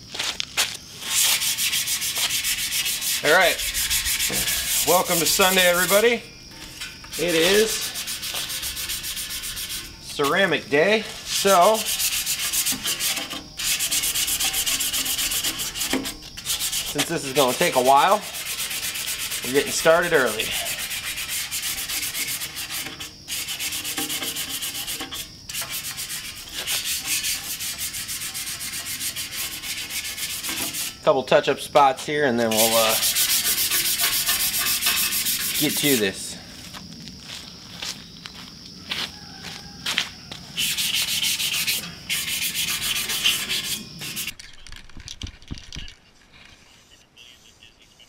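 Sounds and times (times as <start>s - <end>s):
hand-sanding metal tubes: 1.0s - 31.0s, 32.4s - 36.4s, 40.6s - 44.4s.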